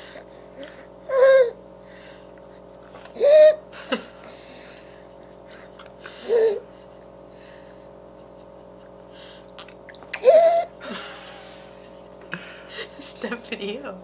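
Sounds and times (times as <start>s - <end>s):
breathy inhalations: 1.8s - 2.7s, 4.2s - 8.0s, 9.1s - 9.5s, 10.8s - 13.1s.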